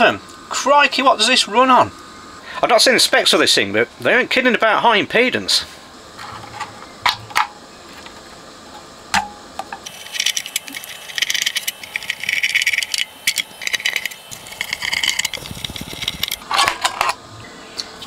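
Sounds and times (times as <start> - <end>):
screwdriver turning screws: 9.9 - 16.4.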